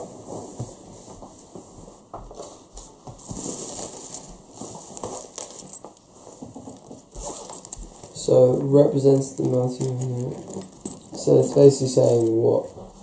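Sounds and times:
paper rustling: 0:03.2 - 0:08.2, 0:09.1 - 0:12.4.

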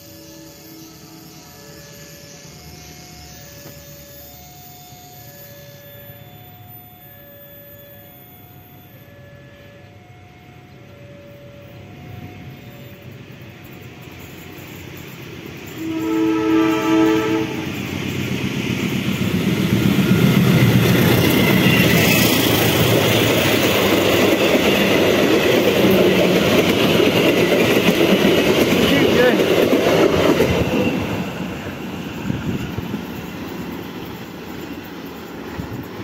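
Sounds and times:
diesel locomotive engine: 0:00.0 - 0:36.0
train wheels clacking on rails: 0:14.0 - 0:36.0
locomotive horn blast: 0:15.8 - 0:17.8.

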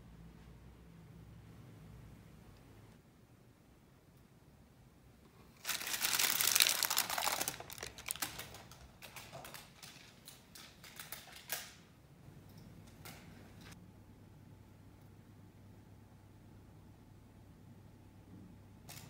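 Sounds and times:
parchment paper crinkling: 0:05.5 - 0:11.8.

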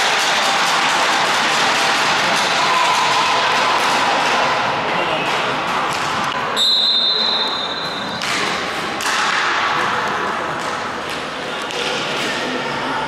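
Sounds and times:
referee's whistle blast: 0:06.6 - 0:08.1.

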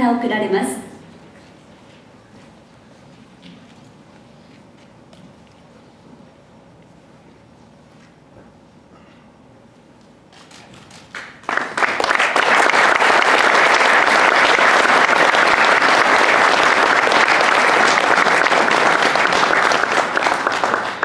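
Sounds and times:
audience applause: 0:10.4 - 0:21.0.

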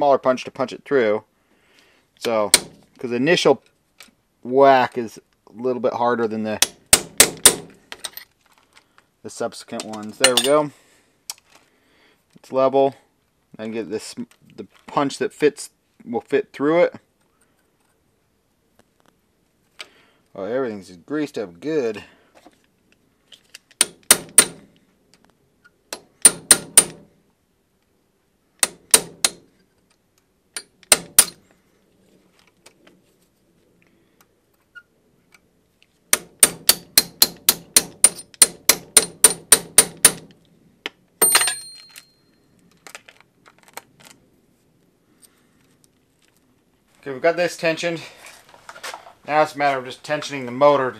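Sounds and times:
hammer tapping steel punch: 0:02.5 - 0:02.8, 0:23.8 - 0:24.7, 0:25.9 - 0:27.0, 0:28.6 - 0:29.4, 0:30.6 - 0:31.4, 0:36.1 - 0:40.3
metallic clink: 0:10.2 - 0:10.6, 0:41.2 - 0:42.4.

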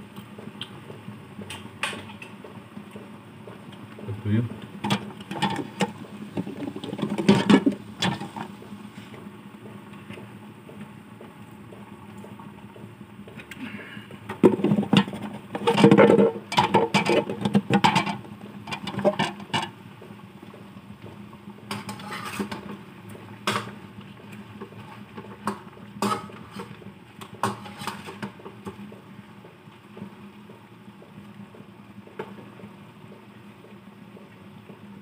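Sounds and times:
utensils clattering on metal pan: 0:14.5 - 0:19.7, 0:21.7 - 0:22.7, 0:25.4 - 0:26.8, 0:27.4 - 0:28.3.

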